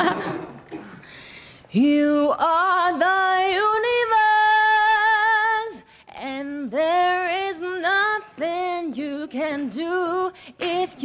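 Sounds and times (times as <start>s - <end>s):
breath: 0.8s - 1.7s, 5.8s - 6.1s, 10.4s - 10.6s
woman singing unaccompanied: 1.8s - 11.0s.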